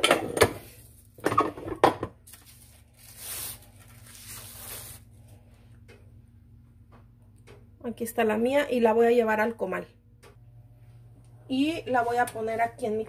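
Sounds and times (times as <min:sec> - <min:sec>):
plastic sheet crinkling: 0:02.2 - 0:05.1.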